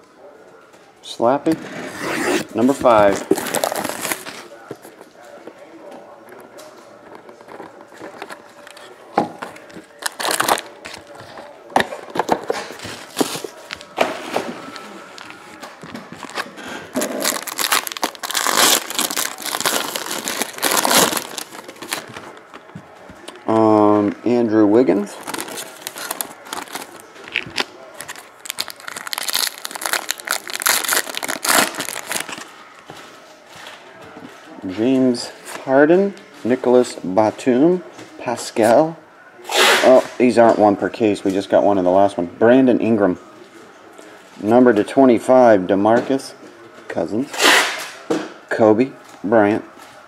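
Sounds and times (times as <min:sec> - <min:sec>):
foil wrapper crinkling: 0:16.2 - 0:22.4, 0:25.1 - 0:32.5.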